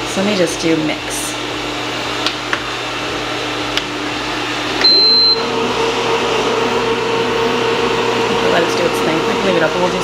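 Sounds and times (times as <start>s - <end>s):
kneading motor humming: 0.0s - 10.0s
high beep: 4.8s - 5.5s.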